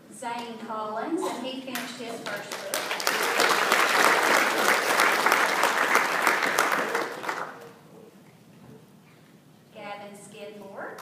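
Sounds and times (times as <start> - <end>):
audience applauding: 2.2 - 7.8.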